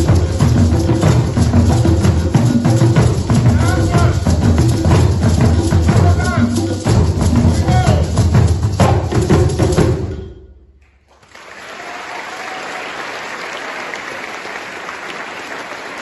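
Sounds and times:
group drumming: 0.0s - 10.8s
applause: 11.0s - 16.0s.

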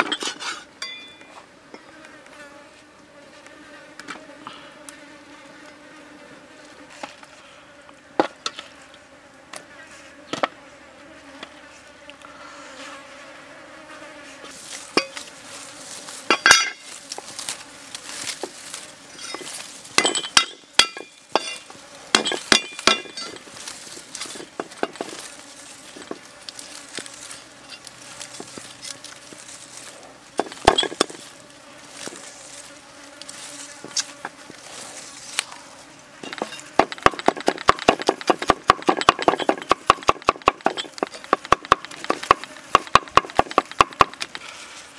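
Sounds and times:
insects buzzing: 0.6s - 44.9s
cleaver chopping on wooden block: 20.0s - 23.2s, 36.3s - 44.4s.

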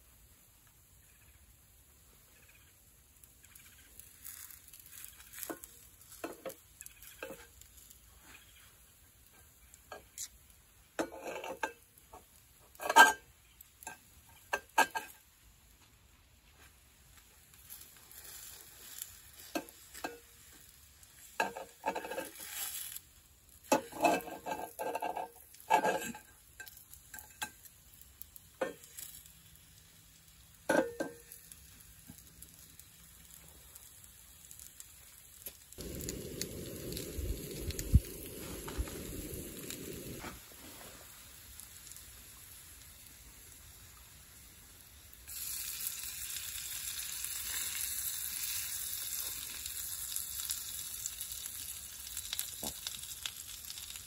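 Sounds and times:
food sizzling in pan: 0.0s - 54.0s
fork scraping and clinking on pan: 11.0s - 13.2s, 13.8s - 15.2s, 21.2s - 23.0s, 23.7s - 27.7s, 30.7s - 31.3s
low rumbling: 35.8s - 40.3s.

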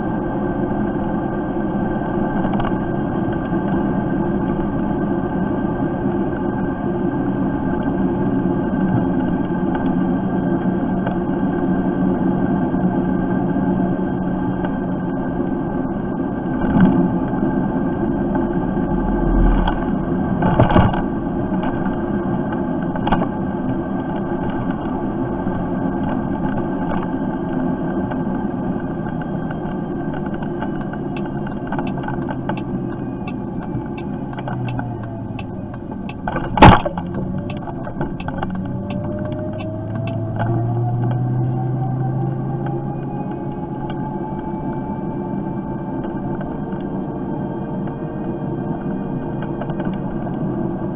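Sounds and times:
electric moped riding rumble: 0.0s - 50.9s
thin rising whine: 17.0s - 23.0s, 37.0s - 48.3s.

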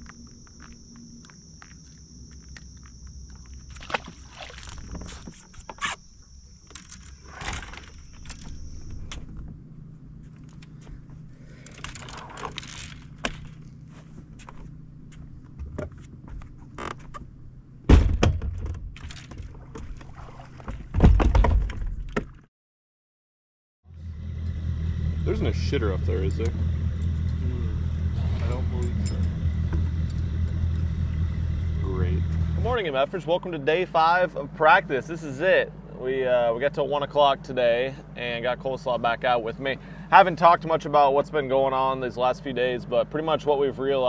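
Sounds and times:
insects trilling: 0.0s - 13.9s
loud thumps: 17.9s - 19.0s
low steady hum: 23.9s - 44.0s.

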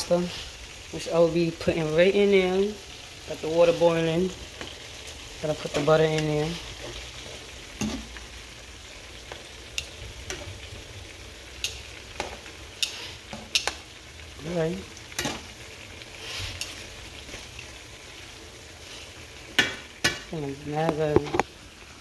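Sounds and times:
chicken frying in hot oil: 0.0s - 22.0s
metal tongs scraping pan: 11.6s - 13.8s, 16.1s - 17.4s.

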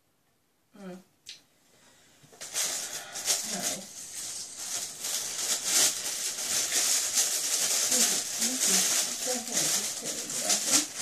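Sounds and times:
plastic packaging crinkling: 2.3s - 11.0s.

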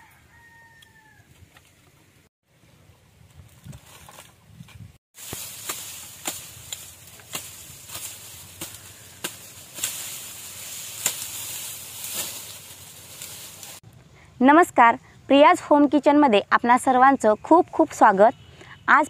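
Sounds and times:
dry leaves crackling and snapping: 5.2s - 13.8s.

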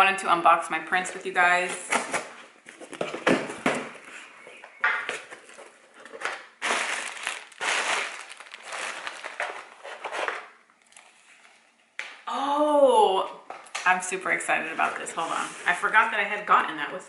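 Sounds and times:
cardboard flaps crinkling: 5.1s - 11.7s
packing tape tearing: 6.2s - 11.2s.

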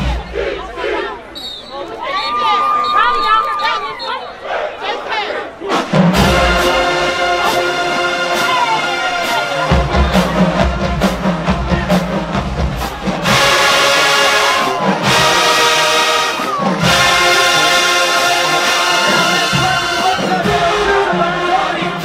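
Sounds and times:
marching band playing: 3.3s - 22.0s
held brass chords: 5.3s - 22.0s
drum hits: 5.7s - 7.7s, 9.7s - 14.0s.

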